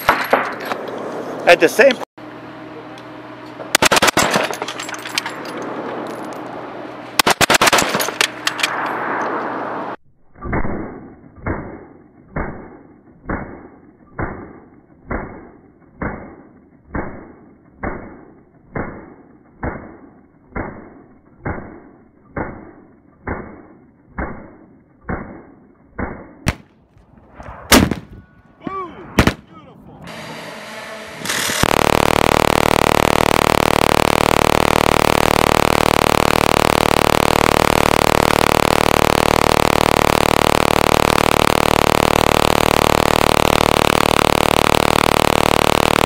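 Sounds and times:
machine-gun fire: 3.7s - 4.7s, 7.2s - 8.2s, 26.4s - 26.7s, 27.7s - 28.1s, 29.2s - 29.5s, 31.3s - 46.0s
dull muffled slowed gunshots: 26.0s - 28.2s, 29.1s - 29.5s.

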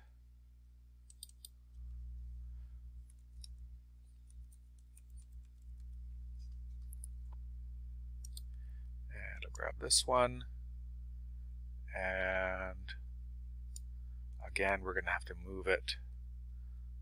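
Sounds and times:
low hum: 0.0s - 17.0s
mouse clicks: 1.1s - 1.6s, 8.2s - 8.6s.

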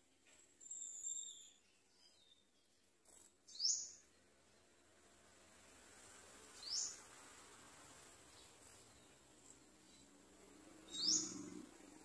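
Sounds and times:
sunbird calling: 10.8s - 11.6s.

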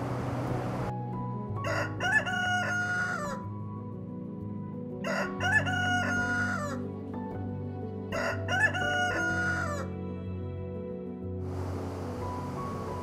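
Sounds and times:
soft background music: 0.0s - 13.0s
rooster crowing: 1.6s - 3.4s, 5.0s - 6.8s, 8.1s - 9.9s.

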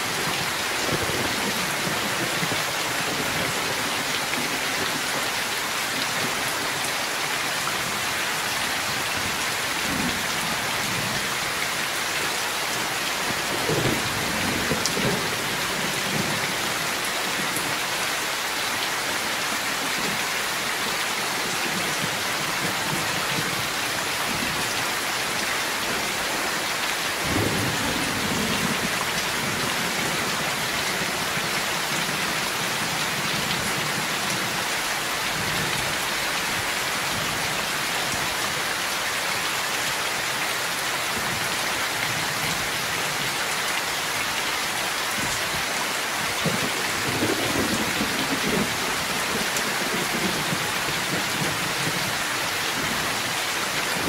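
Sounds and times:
heavy rain splashing: 0.0s - 54.0s.

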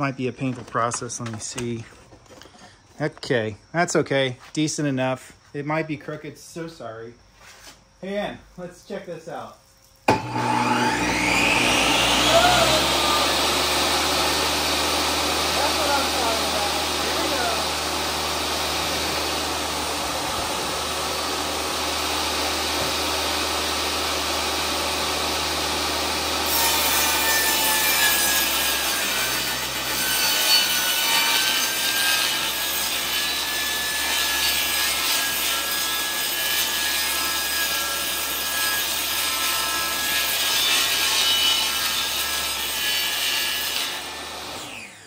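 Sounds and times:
high whine of saw blade: 10.1s - 35.3s
table saw ripping wood: 10.1s - 45.0s.

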